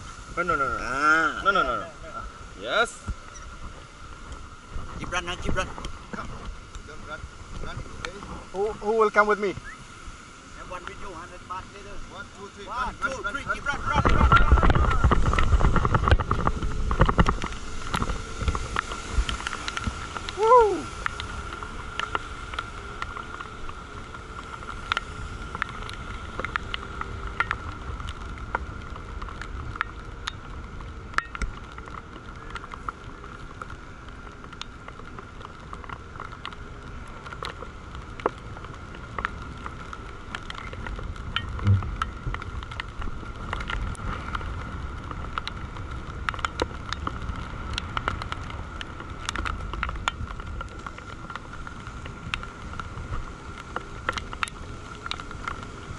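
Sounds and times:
wind rushing over microphone: 0:00.0 - 0:32.7, 0:36.5 - 0:55.9
loud thump: 0:41.6 - 0:42.0.

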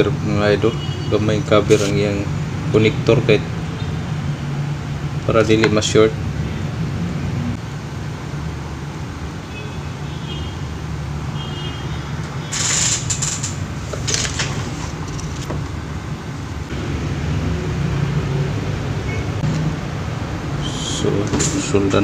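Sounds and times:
low mechanical hum: 0:00.0 - 0:18.0
short hissy noises: 0:01.7 - 0:02.0, 0:12.5 - 0:14.9.

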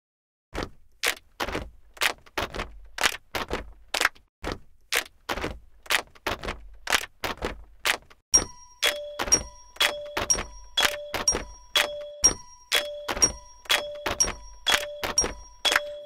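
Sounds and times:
sharp ringing clicks: 0:08.4 - 0:16.0.

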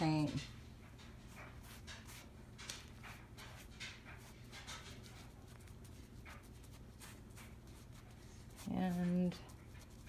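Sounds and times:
foam brush swishing on fabric: 0:05.8 - 0:10.0.

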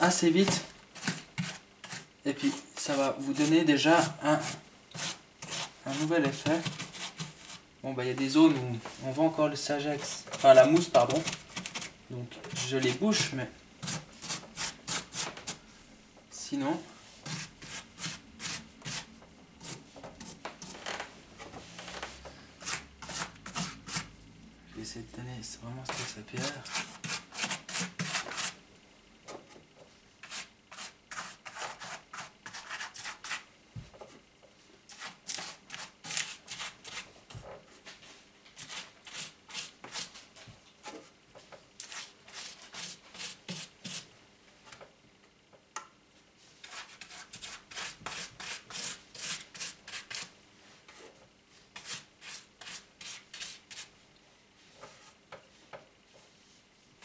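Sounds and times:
paintbrush scratching on foam: 0:00.1 - 0:07.6, 0:09.9 - 0:11.9, 0:12.5 - 0:15.6, 0:17.2 - 0:20.7, 0:22.6 - 0:24.1, 0:25.9 - 0:28.6, 0:30.2 - 0:33.4, 0:41.8 - 0:44.1, 0:46.6 - 0:50.3, 0:51.8 - 0:53.9.

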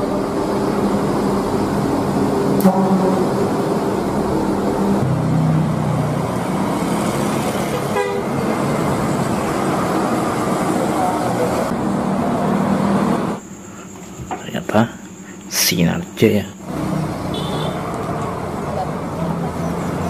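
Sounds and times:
engine and road noise: 0:00.0 - 0:20.0
wavering rising horn tone: 0:00.8 - 0:10.9
bus horns musical tones: 0:02.5 - 0:03.6, 0:07.8 - 0:09.0, 0:17.3 - 0:17.9.

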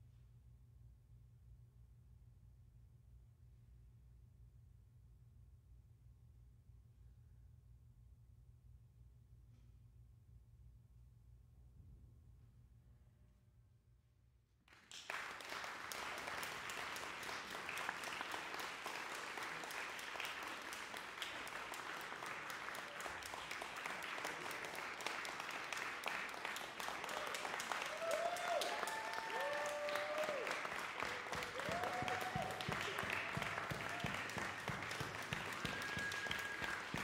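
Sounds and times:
audience applauding: 0:14.7 - 0:37.0.

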